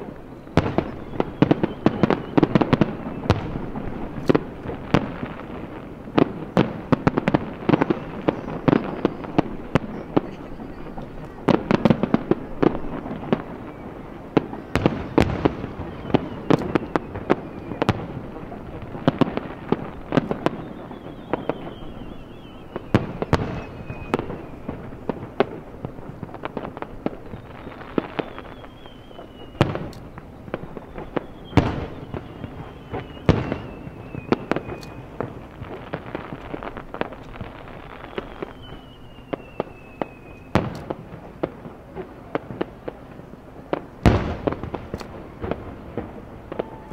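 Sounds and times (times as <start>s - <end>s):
loud firework booms: 0.0s - 43.1s, 43.7s - 46.9s
fireworks bangs and crackles: 0.0s - 46.9s
faint falling whistle: 0.3s - 3.4s, 15.8s - 18.0s, 20.4s - 24.8s, 27.2s - 35.2s, 37.9s - 40.6s.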